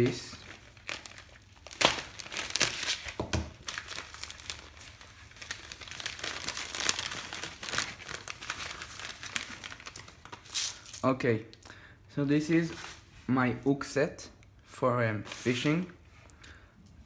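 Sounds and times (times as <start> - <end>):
plastic bag crinkling and tearing: 0.0 - 11.1.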